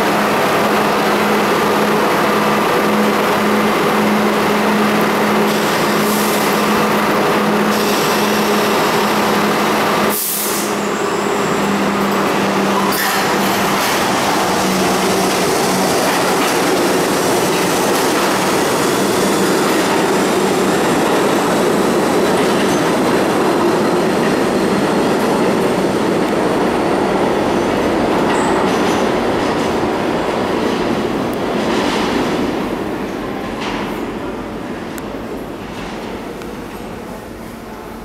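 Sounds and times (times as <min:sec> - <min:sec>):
subway train wheels rumbling: 0:00.0 - 0:38.0.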